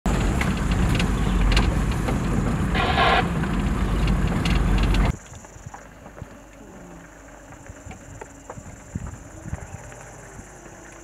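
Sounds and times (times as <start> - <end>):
vehicle engine and road rumble: 0.0 - 5.2
knocks and rattles: 0.1 - 5.1.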